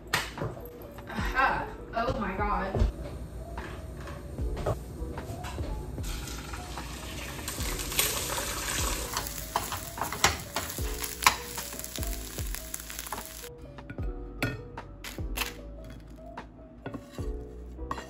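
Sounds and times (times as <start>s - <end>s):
eggs sizzling in frying pan: 6.0s - 13.5s
spatula scraping and knocking pan: 16.8s - 18.0s.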